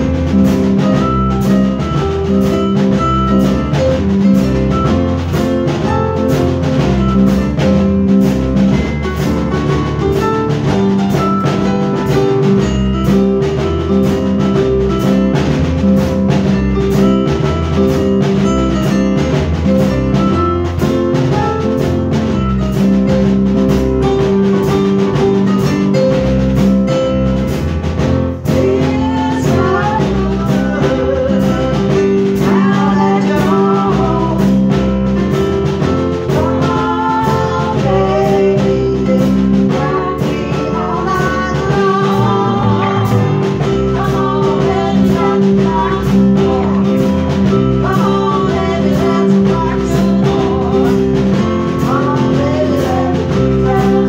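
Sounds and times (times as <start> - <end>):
band with keyboards and drums: 0.0 - 54.0
person singing: 28.4 - 35.0, 36.2 - 54.0.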